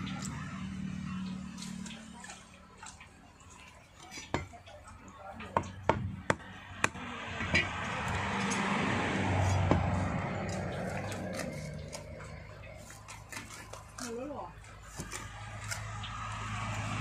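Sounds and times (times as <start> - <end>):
vehicle passing: 6.4 - 17.0.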